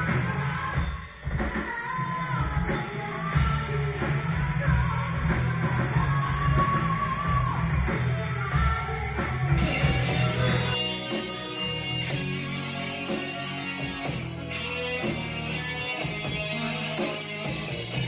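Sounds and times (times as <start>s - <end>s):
rock band playing: 9.6s - 18.0s.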